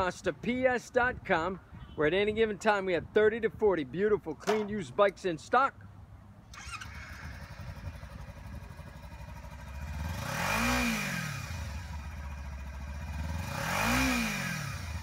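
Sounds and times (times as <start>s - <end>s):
motorcycle engine revving: 6.5s - 15.0s
motorcycle engine idling: 6.6s - 13.8s.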